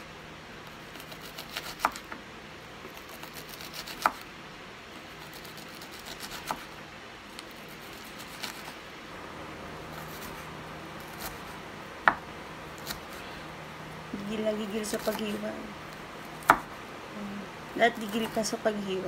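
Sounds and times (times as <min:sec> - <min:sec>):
knife tapping cutting board: 0:12.0 - 0:12.2.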